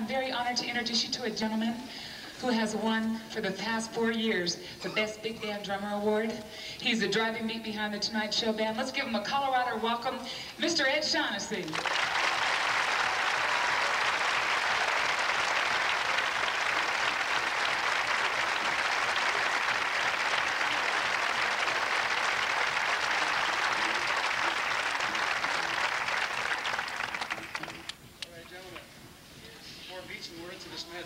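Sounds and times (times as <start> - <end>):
audience applauding: 11.7 - 28.0.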